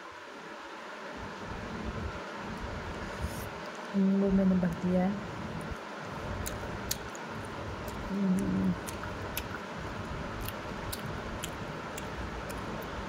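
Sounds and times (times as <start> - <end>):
steady hiss: 0.0 - 13.0
person humming: 8.1 - 8.9.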